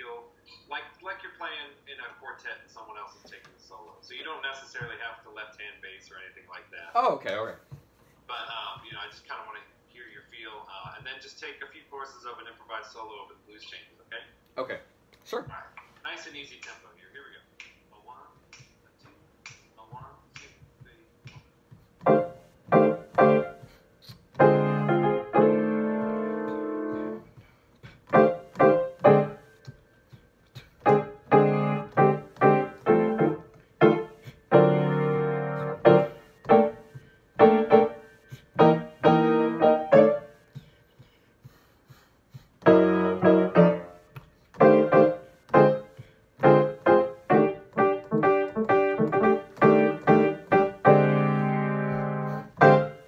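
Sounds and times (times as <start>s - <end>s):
jazz piano chords: 21.9s - 27.4s, 28.0s - 40.5s, 42.6s - 53.0s.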